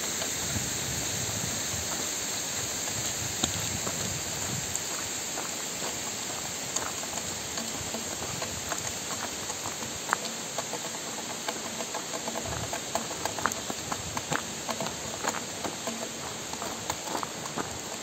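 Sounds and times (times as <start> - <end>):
steady watery hiss: 0.0 - 18.0
light taps and clicks: 5.8 - 18.0.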